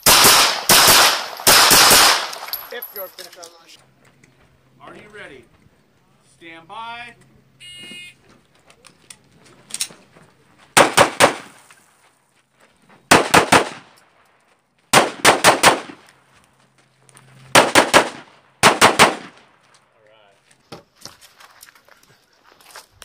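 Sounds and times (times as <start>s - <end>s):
pistol shots: 0.0s - 2.8s, 10.8s - 11.6s, 13.1s - 14.0s, 14.9s - 16.0s, 17.5s - 19.5s.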